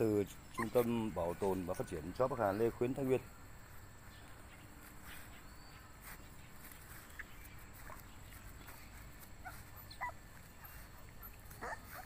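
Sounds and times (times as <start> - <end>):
puppies squeaking and whimpering: 0.2 - 2.9, 9.0 - 12.0.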